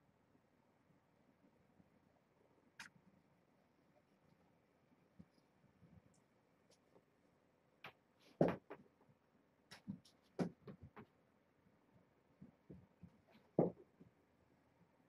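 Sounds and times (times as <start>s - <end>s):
knocks: 8.4s - 8.8s.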